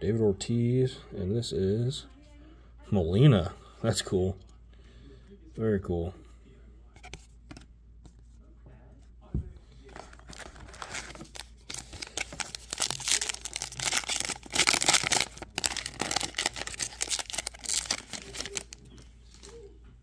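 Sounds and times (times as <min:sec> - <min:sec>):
foil wrapper tearing and crinkling: 0:10.3 - 0:19.5.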